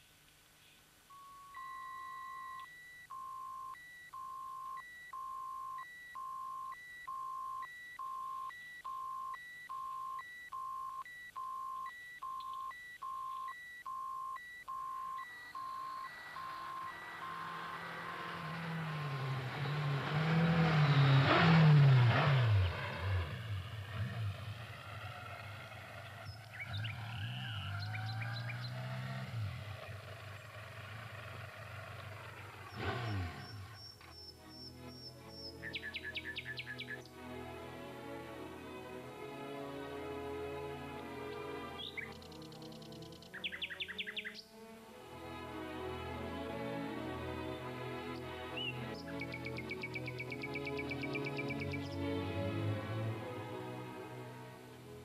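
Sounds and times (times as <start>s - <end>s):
high electronic beeps: 1.1s - 18.8s
vehicle engine passing by: 15.8s - 43.2s, 45.1s - 55.0s.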